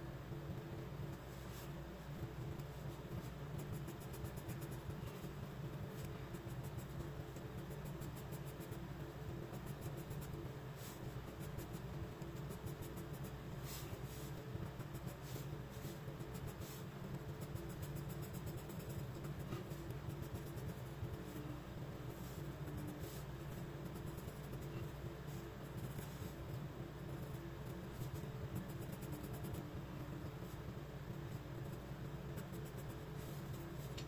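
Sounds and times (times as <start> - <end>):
pencil scratching on paper: 2.7 - 5.4, 9.5 - 30.7, 31.3 - 34.0.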